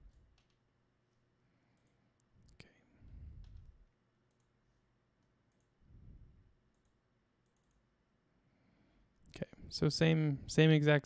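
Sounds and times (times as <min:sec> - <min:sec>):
computer mouse clicks: 0:00.1 - 0:00.6, 0:01.7 - 0:02.6, 0:03.4 - 0:04.6, 0:05.5 - 0:05.8, 0:06.7 - 0:07.9.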